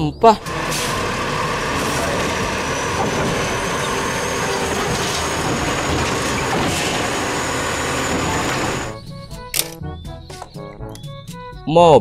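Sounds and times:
diesel engine running: 0:00.3 - 0:09.2
garbage truck hydraulic arm: 0:00.4 - 0:09.0.

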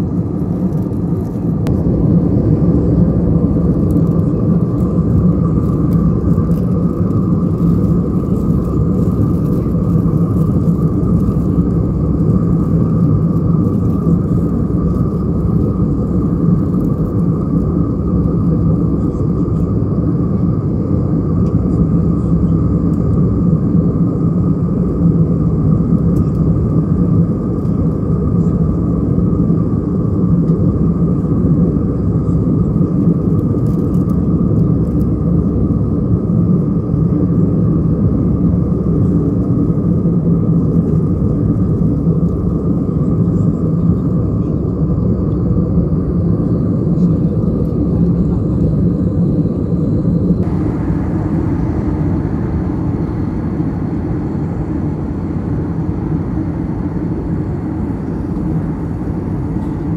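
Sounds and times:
high steady hum: 0:00.0 - 0:29.9, 0:44.4 - 0:59.9
aircraft engine drone and airflow: 0:00.0 - 0:59.9.

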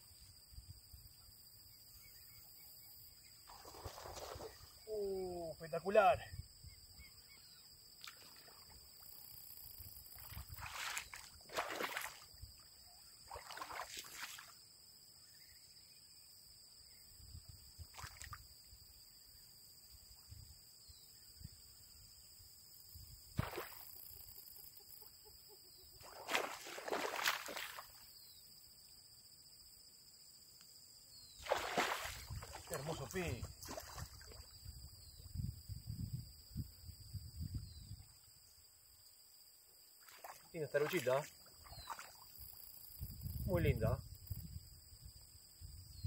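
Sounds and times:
splashing in shallow water: 0:03.4 - 0:05.2, 0:08.0 - 0:09.2, 0:09.8 - 0:14.6, 0:17.8 - 0:18.5, 0:23.4 - 0:24.2, 0:26.0 - 0:28.1, 0:31.4 - 0:34.8, 0:39.9 - 0:43.0
fish thrashing at surface: 0:31.4 - 0:34.1.

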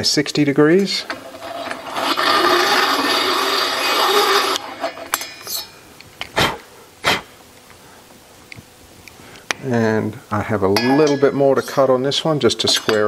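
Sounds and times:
cutter scraping metal valve seat: 0:01.0 - 0:05.8.

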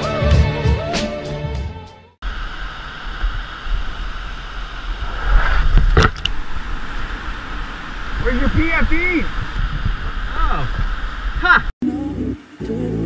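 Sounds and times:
whitewater rushing: 0:02.3 - 0:11.7.

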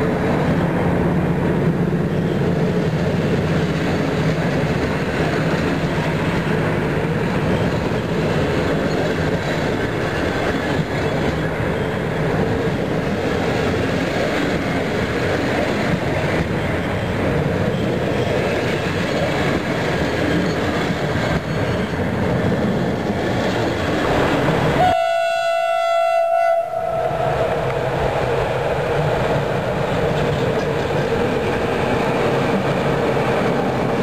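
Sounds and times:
train wheels rumbling on rail: 0:00.0 - 0:34.0
locomotive horn: 0:24.8 - 0:27.7.

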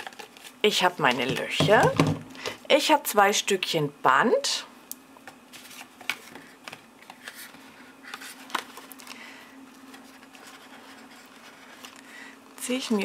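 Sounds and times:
faint steady hum: 0:00.0 - 0:13.0
paper rustling: 0:05.5 - 0:09.2, 0:09.8 - 0:12.1.

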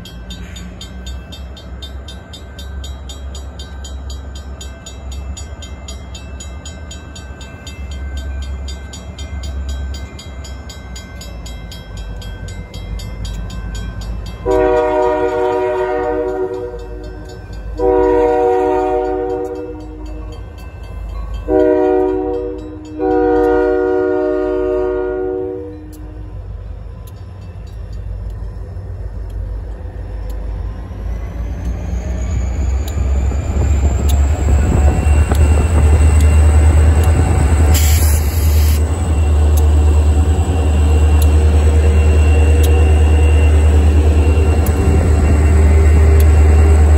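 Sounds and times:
locomotive air horn: 0:14.4 - 0:17.0, 0:17.8 - 0:20.0, 0:21.5 - 0:26.0.

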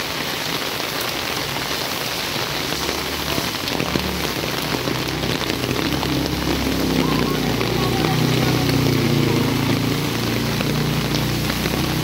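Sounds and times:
heavy rain on standing water: 0:00.0 - 0:12.0
motorcycle engine humming: 0:02.6 - 0:12.0.

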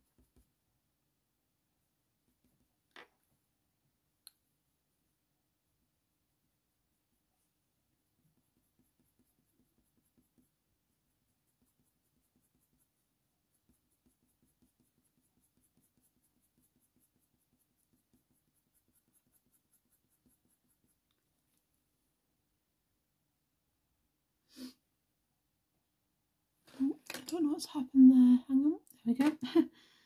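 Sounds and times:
coloured pencil scratching on paper: 0:00.0 - 0:00.6, 0:02.2 - 0:02.8, 0:06.9 - 0:21.1.

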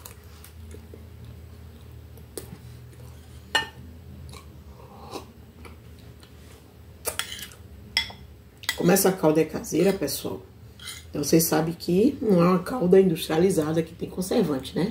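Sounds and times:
person chewing cake: 0:00.0 - 0:03.5.

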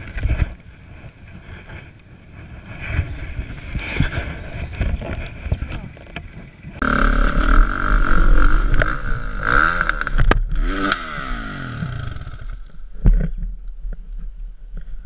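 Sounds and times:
dirt bike engine revving: 0:06.7 - 0:12.7.

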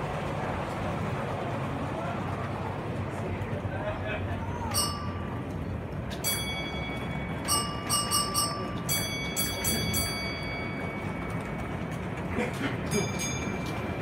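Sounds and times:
steady low rumble: 0:00.0 - 0:14.0
metallic bell strikes: 0:04.7 - 0:05.3.

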